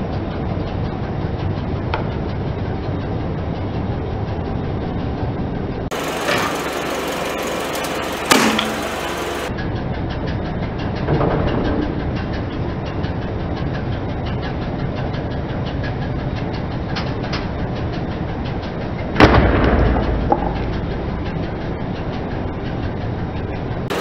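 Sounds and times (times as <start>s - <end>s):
car engine running: 0.9s - 9.5s, 16.6s - 24.0s.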